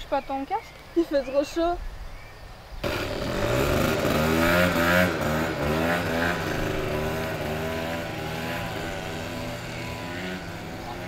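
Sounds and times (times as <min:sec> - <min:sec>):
motor scooter engine revving: 0:02.8 - 0:11.0.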